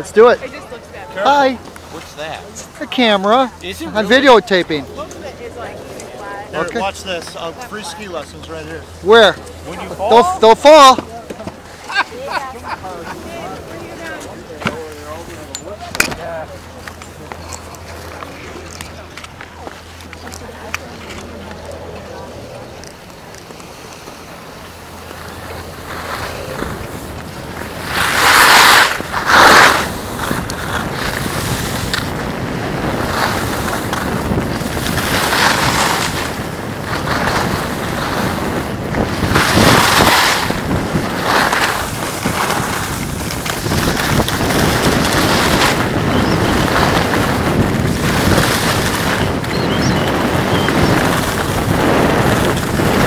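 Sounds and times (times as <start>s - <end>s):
wind rushing over microphone: 0.0s - 11.9s, 16.3s - 53.0s
skis scraping over packed snow: 0.0s - 53.0s.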